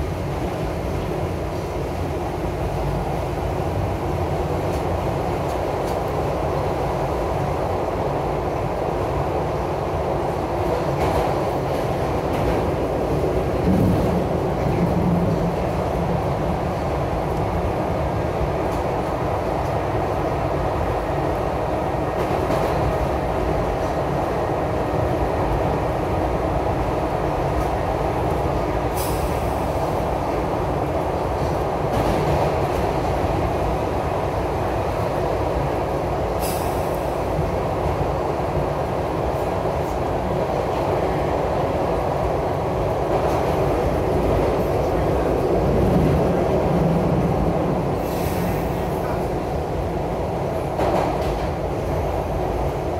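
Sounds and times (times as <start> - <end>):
subway train rumbling on rails: 0.0 - 52.9.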